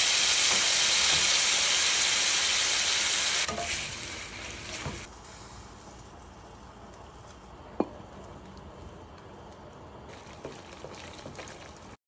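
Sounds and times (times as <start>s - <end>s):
water poured into a pan: 10.1s - 12.0s.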